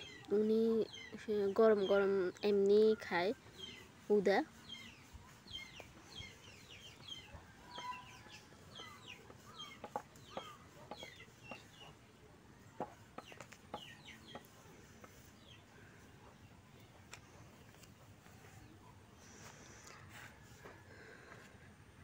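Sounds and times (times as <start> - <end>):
chickens clucking and chirping: 3.0 - 19.2.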